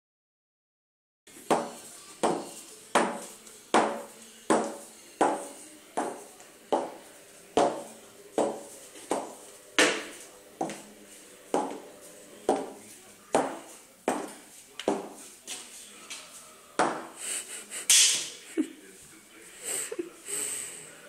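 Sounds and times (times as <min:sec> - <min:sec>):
boot heel knocking on tile floor: 0:01.5 - 0:07.0, 0:07.6 - 0:10.8, 0:11.6 - 0:11.9, 0:12.5 - 0:15.2, 0:16.8 - 0:17.2.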